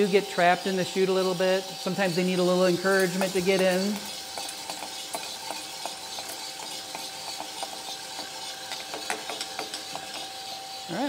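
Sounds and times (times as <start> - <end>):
coffee beans rattling: 0.0 - 10.9
coffee roaster hissing and humming: 0.0 - 11.0.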